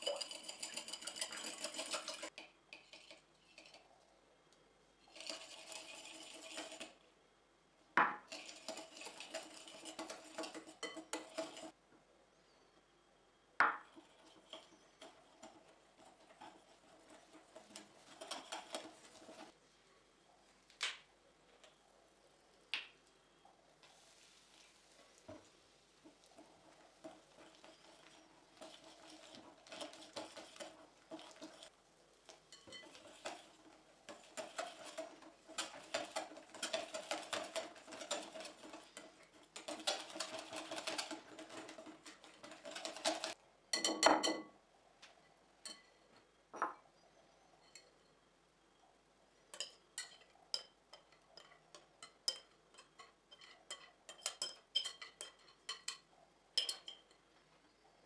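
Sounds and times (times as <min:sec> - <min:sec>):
whisk beating in glass bowl: 0:00.0 - 0:03.8, 0:05.1 - 0:07.0, 0:08.2 - 0:11.8, 0:13.7 - 0:19.5, 0:26.1 - 0:31.7, 0:32.3 - 0:44.4, 0:49.5 - 0:56.0.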